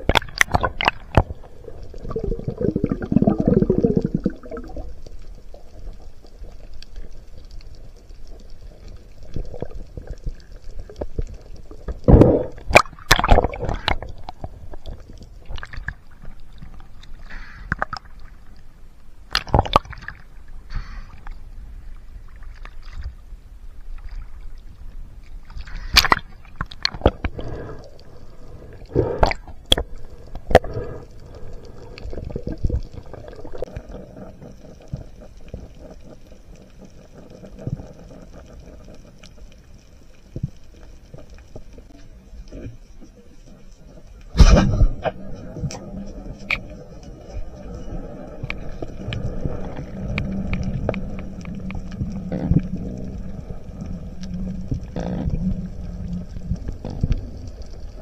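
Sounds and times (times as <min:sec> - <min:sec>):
water gurgling underwater: 0:00.0 - 0:07.1, 0:08.6 - 0:18.5, 0:19.4 - 0:20.3, 0:31.8 - 0:39.4, 0:43.4 - 0:58.0
faint steady hum: 0:00.0 - 0:58.0.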